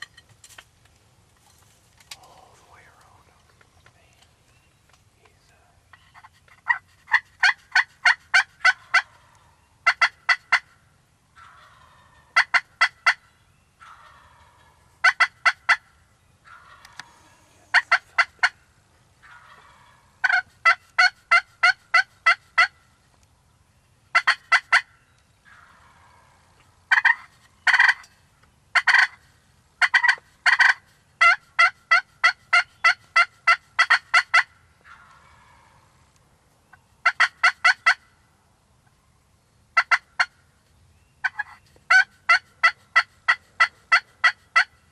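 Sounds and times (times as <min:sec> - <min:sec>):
rough turkey calls: 0:05.8 - 0:23.2, 0:24.1 - 0:38.2, 0:39.7 - 0:40.6, 0:41.2 - 0:44.9
turkey yelping: 0:06.1 - 0:10.7, 0:11.3 - 0:13.2, 0:13.8 - 0:22.8, 0:24.1 - 0:28.0, 0:28.8 - 0:36.0, 0:37.0 - 0:38.0, 0:39.8 - 0:40.4, 0:41.2 - 0:44.8.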